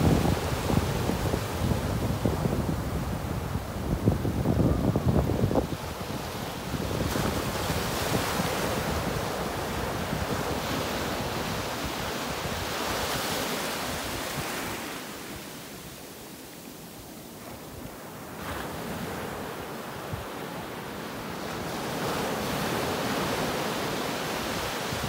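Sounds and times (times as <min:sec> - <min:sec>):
ocean surf washing up beach: 0:00.0 - 0:25.0.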